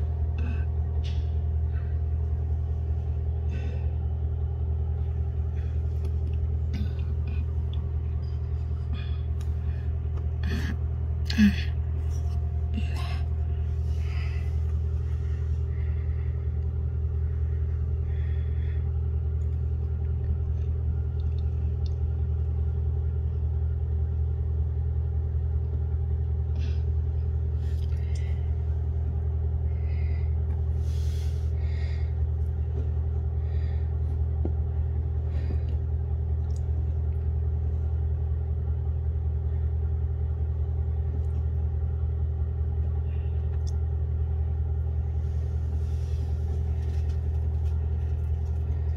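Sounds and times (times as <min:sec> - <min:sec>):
low machine hum: 0:00.0 - 0:48.9.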